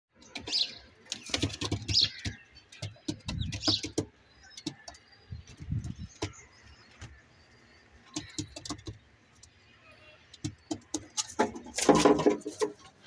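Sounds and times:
birds chirping: 0:00.1 - 0:13.0.

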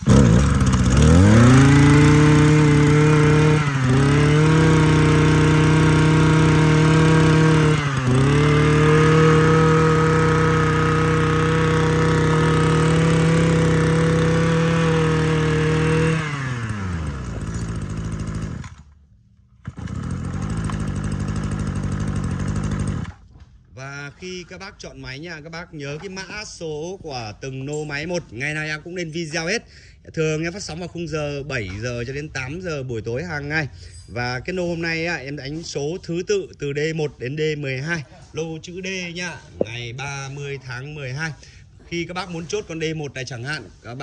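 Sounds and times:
brush cutter engine running: 0:00.0 - 0:23.5
brush cutter pull-started: 0:00.0 - 0:23.5.

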